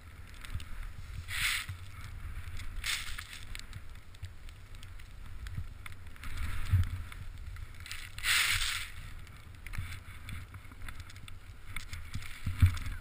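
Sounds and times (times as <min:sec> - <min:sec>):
wind rumbling on microphone: 0:00.0 - 0:13.0
swishes of spraying snow: 0:00.6 - 0:04.8, 0:06.2 - 0:09.2.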